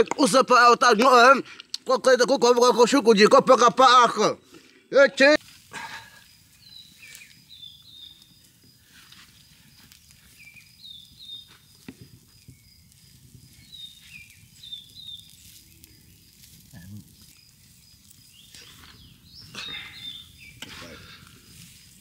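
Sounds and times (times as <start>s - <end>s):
twig fire crackling: 0.0s - 22.0s
high downward-gliding bird chirps: 6.2s - 8.5s, 10.2s - 12.9s, 13.5s - 16.4s, 17.2s - 20.7s.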